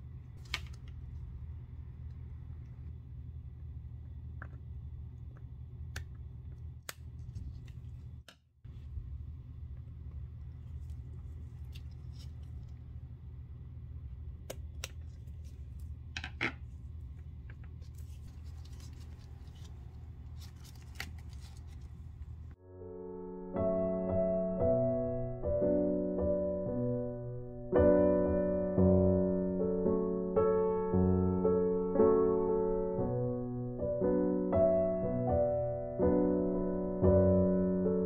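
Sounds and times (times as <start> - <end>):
steady low hum: 0.0 - 22.6.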